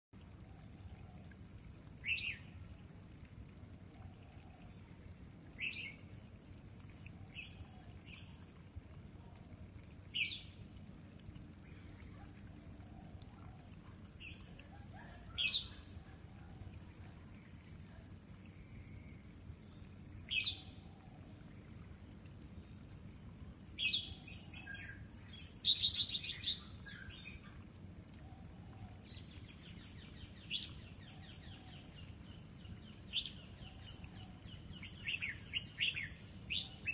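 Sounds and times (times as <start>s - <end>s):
low background rumble: 0.2s - 25.7s.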